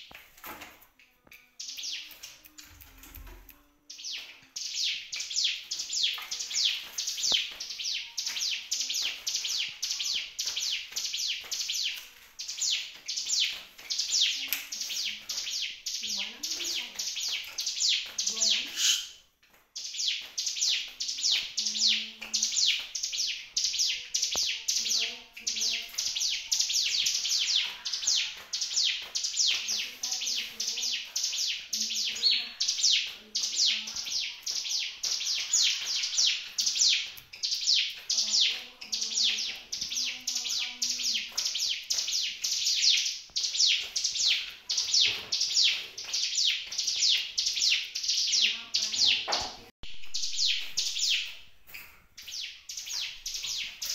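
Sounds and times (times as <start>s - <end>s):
small bird singing high notes: 3.8s - 19.2s.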